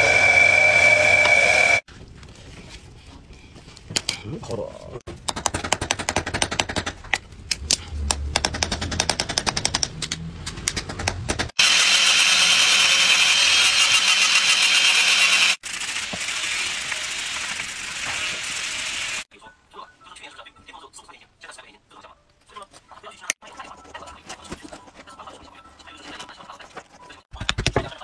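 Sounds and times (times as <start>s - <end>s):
high-pitched grinding: 0.0s - 1.8s, 11.6s - 17.8s.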